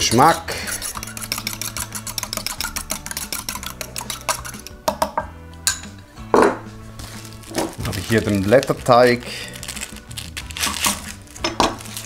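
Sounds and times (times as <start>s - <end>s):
background music: 0.0s - 12.0s
fork clinking against bowl: 0.7s - 4.8s.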